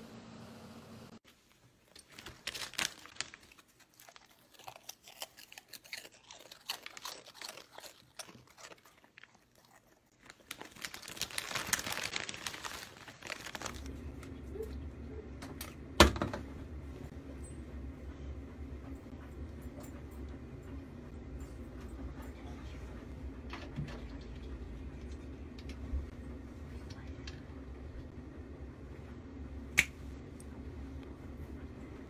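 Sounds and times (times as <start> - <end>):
plastic wrapper crinkling: 1.8 - 14.2
dog crunching a snack: 1.9 - 14.1
steady low hum: 13.5 - 32.0.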